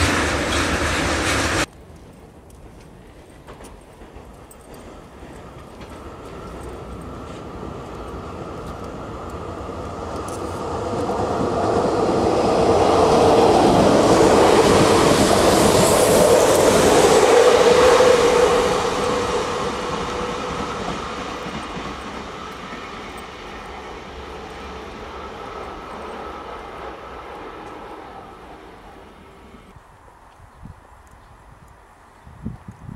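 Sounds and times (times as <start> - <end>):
train wheels on rails: 0.0 - 30.4
train hum: 0.0 - 32.9.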